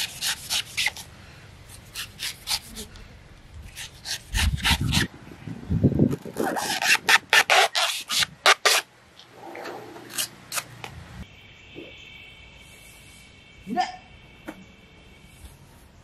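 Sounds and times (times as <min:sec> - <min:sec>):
machete rasping into coconut husk: 0:00.0 - 0:01.1, 0:01.8 - 0:02.9, 0:03.7 - 0:05.1, 0:06.4 - 0:08.9.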